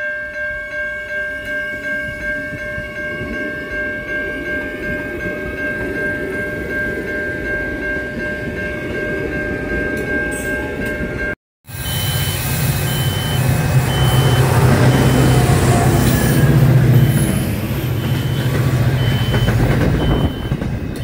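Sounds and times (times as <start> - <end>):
train wheels rumbling on rail: 1.2 - 21.0
high electrical tones: 11.7 - 21.0.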